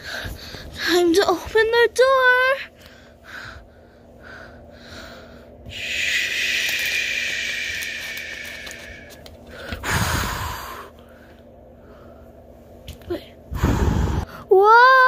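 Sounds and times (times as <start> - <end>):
breathy hiss from mouth: 5.7 - 9.2.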